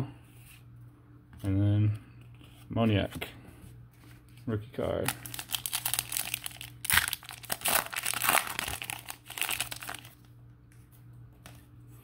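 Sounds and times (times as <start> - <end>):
foil wrapper crinkling and tearing: 5.0 - 10.3.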